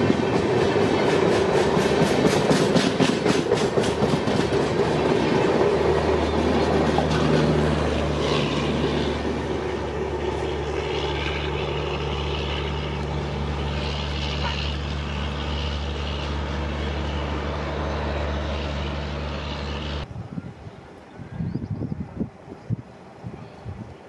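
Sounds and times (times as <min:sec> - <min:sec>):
train wheels clacking on rail joints: 0:00.0 - 0:09.4
diesel generator humming: 0:03.4 - 0:20.1.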